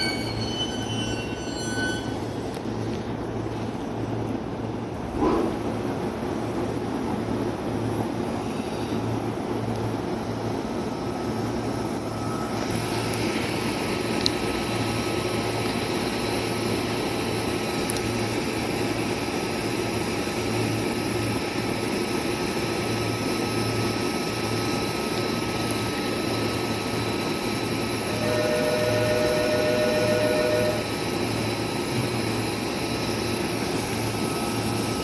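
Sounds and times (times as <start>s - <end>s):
electric train equipment humming: 0.0s - 35.0s
click: 17.9s - 18.1s
two-note tone: 28.1s - 30.9s.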